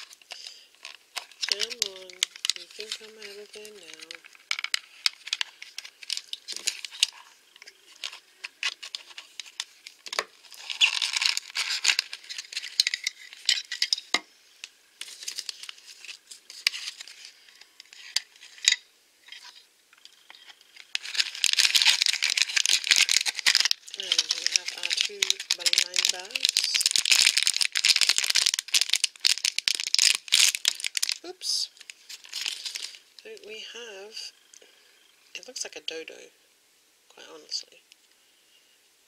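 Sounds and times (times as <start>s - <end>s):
plastic wrapping crinkling: 0.0s - 33.4s.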